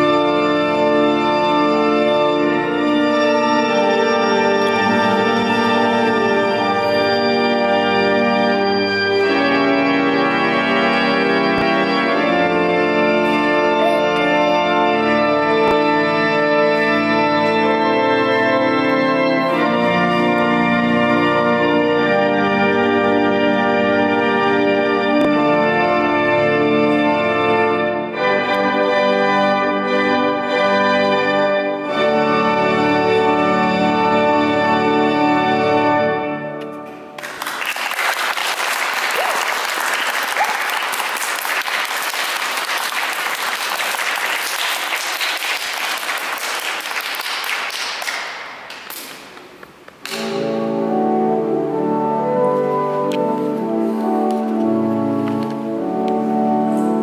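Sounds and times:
pipe organ playing chords: 0.0 - 47.3, 49.4 - 57.0
audience applauding: 37.2 - 49.3.

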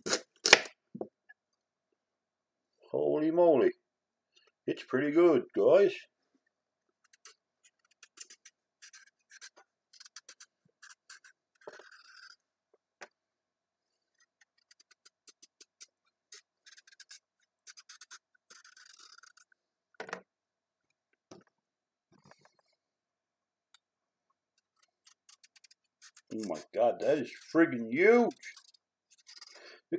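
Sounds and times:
knife scraping carrot: 0.0 - 0.6, 7.0 - 12.5, 14.0 - 19.6, 24.6 - 29.8.

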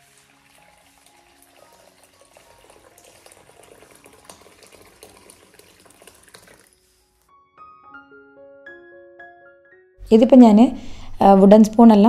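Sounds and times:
tap water pouring into bowl: 0.0 - 7.0.

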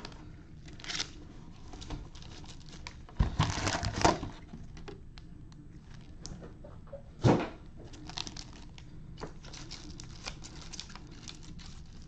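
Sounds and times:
foil wrappers crinkling: 0.0 - 5.0, 7.8 - 12.0.

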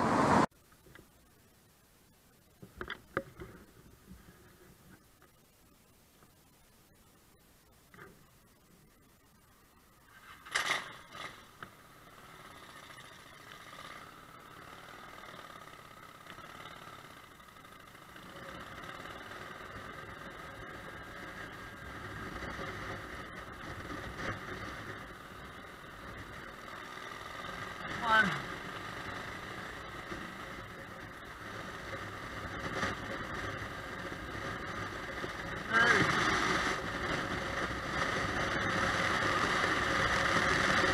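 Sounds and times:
road and wind noise: 0.0 - 0.5, 10.1 - 40.9
motorcycle pulling away: 10.6 - 40.9.

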